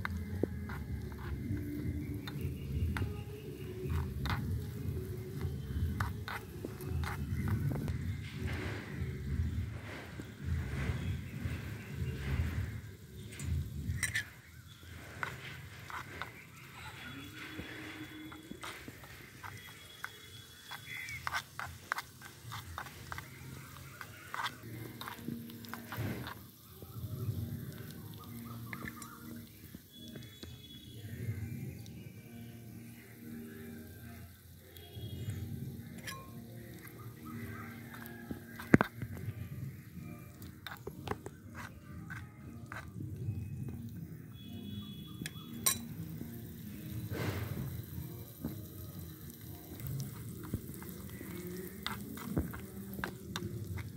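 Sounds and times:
metal spoon scraping a pan: 0.0 - 9.1, 9.8 - 26.6, 35.7 - 39.3, 40.3 - 43.2, 45.2 - 47.9, 49.2 - 53.9.

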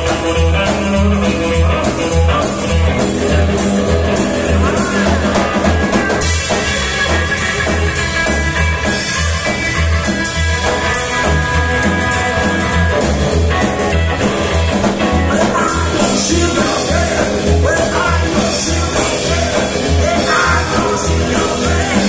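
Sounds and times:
double bass: 0.0 - 22.0
rock and roll band playing: 0.0 - 22.0
man singing: 4.4 - 5.9, 15.1 - 22.0.

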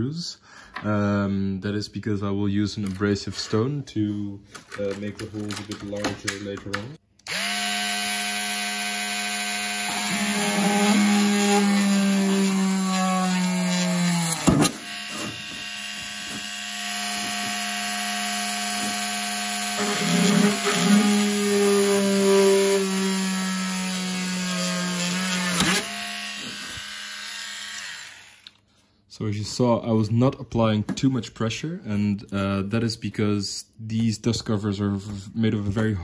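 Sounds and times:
rotary tool drilling plastic: 7.2 - 28.6.

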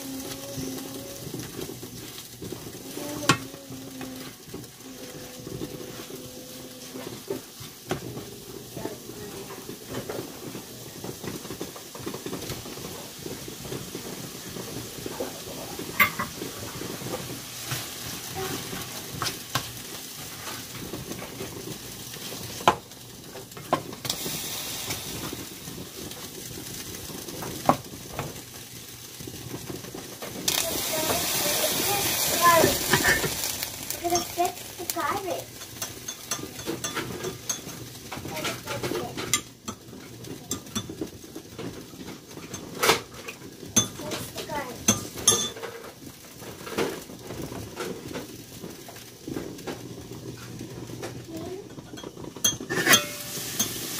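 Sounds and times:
meat sizzling in a pan: 0.0 - 53.9
spatula scraping a pan: 30.5 - 41.2, 51.7 - 53.9.

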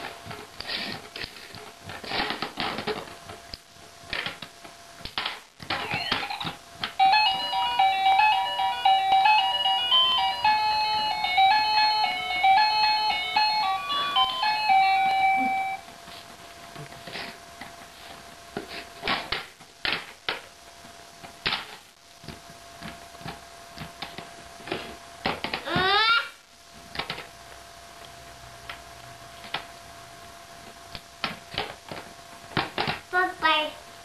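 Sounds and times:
toy playing electronic beeping tune: 5.8 - 15.8.

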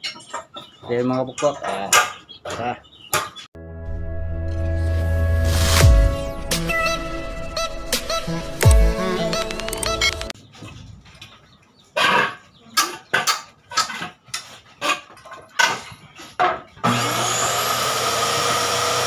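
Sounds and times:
power tool motor humming: 16.8 - 19.0.

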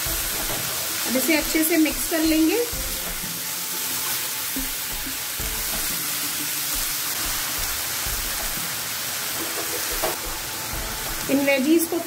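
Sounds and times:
vegetables sizzling in oil: 0.0 - 12.0
spatula knocking on pan: 9.4 - 10.9.

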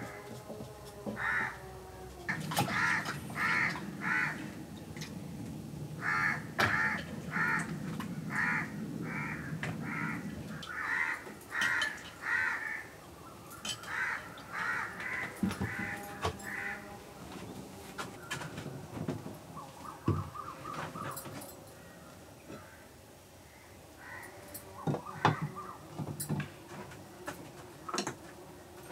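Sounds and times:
crows cawing: 1.1 - 1.7, 2.3 - 4.6, 6.0 - 13.0, 13.7 - 16.9, 19.8 - 25.8
low steady rumble: 1.5 - 10.9.

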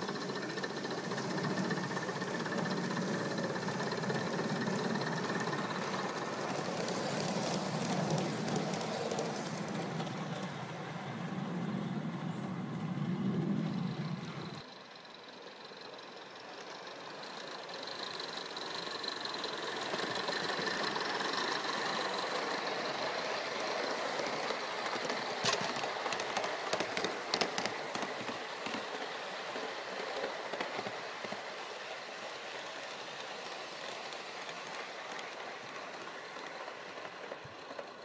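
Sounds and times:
model steam locomotive running: 0.0 - 38.0
sharp clicks of wheels: 17.5 - 31.5.

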